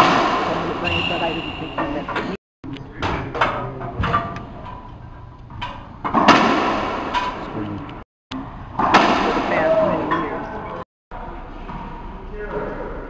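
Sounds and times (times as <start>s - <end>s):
racquetball hits echoing: 0.0s - 2.3s, 6.1s - 7.5s, 8.8s - 10.4s.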